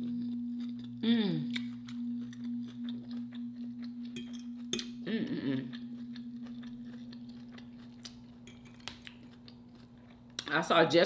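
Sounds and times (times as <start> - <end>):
steady low hum: 0.0 - 11.0
person humming: 1.0 - 1.6, 5.0 - 5.7.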